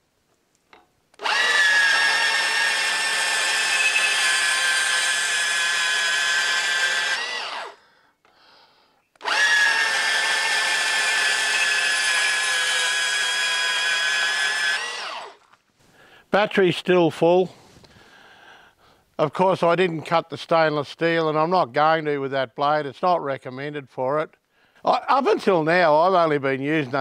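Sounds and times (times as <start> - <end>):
bandsaw cutting steel: 1.2 - 7.9, 9.2 - 15.5.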